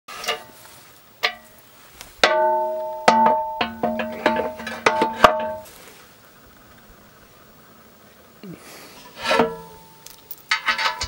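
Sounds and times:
metal bucket clanking against grapple: 2.2s - 6.0s, 9.0s - 11.0s.

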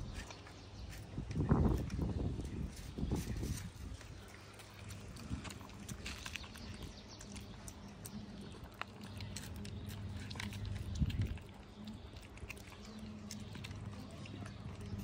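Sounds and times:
cats chewing and crunching food: 0.0s - 15.0s.

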